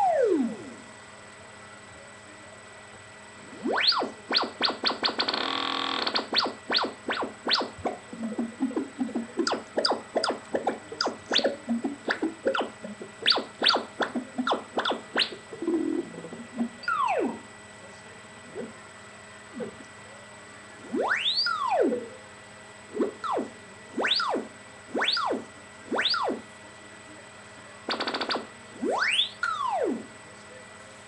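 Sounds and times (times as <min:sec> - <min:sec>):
buzzy synthesizer tone: 0:00.0 - 0:00.8, 0:03.4 - 0:17.5, 0:20.8 - 0:22.2, 0:22.9 - 0:26.4, 0:27.9 - 0:30.2
synthesizer chirps and pitch sweeps: 0:00.0 - 0:00.8, 0:03.5 - 0:17.5, 0:20.8 - 0:22.1, 0:22.9 - 0:26.4, 0:27.9 - 0:30.1
faint hum: 0:00.0 - 0:31.0.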